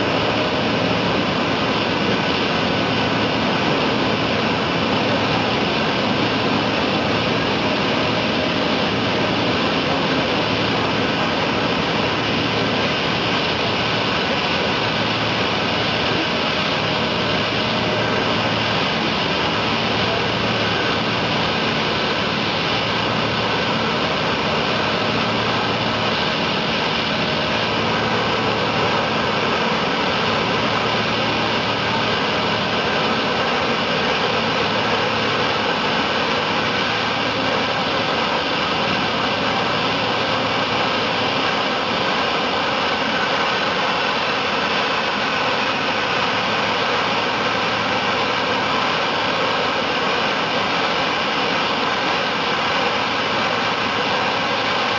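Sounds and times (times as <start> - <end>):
high-pressure water jets hissing: 0.0 - 54.9
pump engine running: 0.0 - 54.9.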